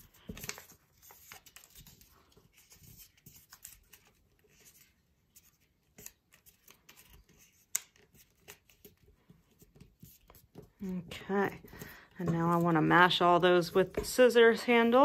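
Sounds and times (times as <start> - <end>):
paper rustling and crinkling: 0.0 - 13.2
sharp paper click: 6.0 - 8.8.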